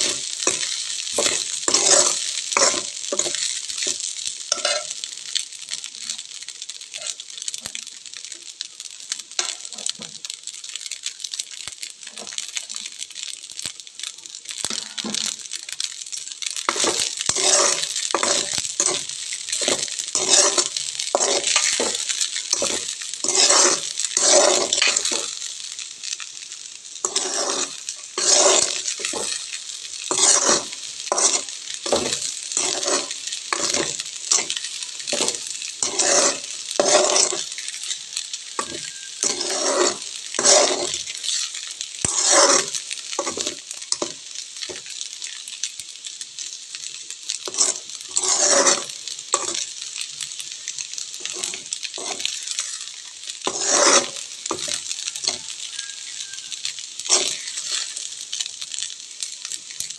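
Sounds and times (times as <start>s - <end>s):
spatula scraping pan: 0.0s - 5.0s, 16.4s - 45.0s, 47.4s - 49.8s, 50.7s - 58.1s
flour sizzling in metal pan: 0.0s - 59.9s.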